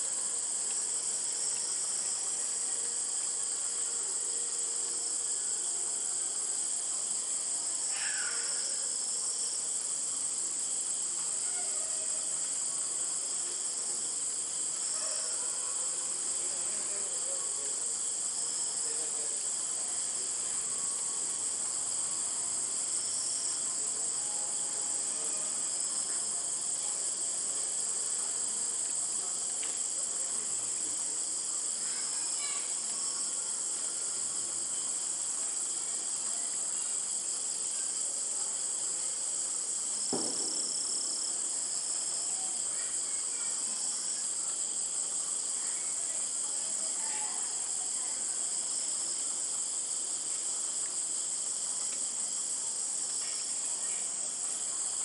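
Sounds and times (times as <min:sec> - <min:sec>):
night insects chorus: 0:00.0 - 0:55.0
soft thump: 0:40.1 - 0:41.0.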